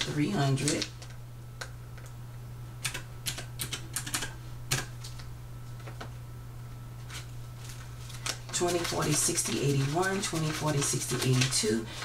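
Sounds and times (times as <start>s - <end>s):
calculator keys clicking: 2.8s - 4.9s.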